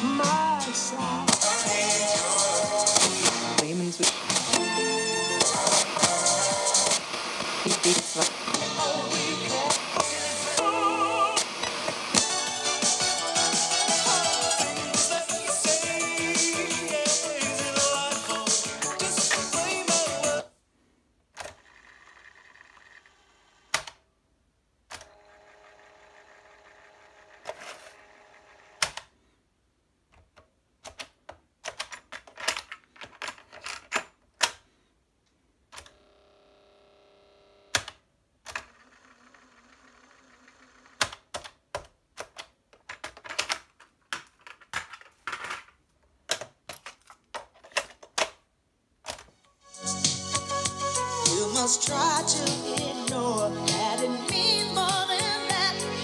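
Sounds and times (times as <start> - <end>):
plastic cassette clatter: 42.2 - 48.4.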